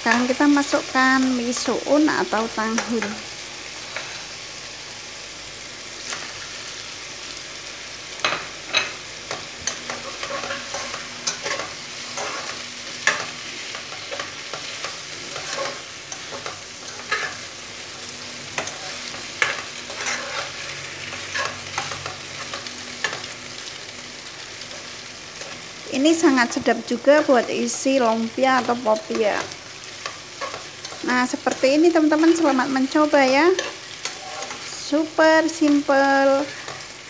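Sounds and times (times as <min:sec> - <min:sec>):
food sizzling in a wok: 0:00.0 - 0:37.0
metal spatula scraping a pan: 0:08.2 - 0:23.9, 0:27.2 - 0:37.0.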